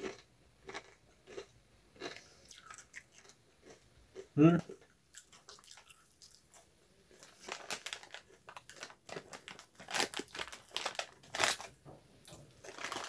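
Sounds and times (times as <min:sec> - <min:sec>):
tortilla chips crunching: 0:00.0 - 0:01.4, 0:05.1 - 0:11.8, 0:12.6 - 0:13.0
snack bag crinkling: 0:05.2 - 0:11.8, 0:12.6 - 0:13.0.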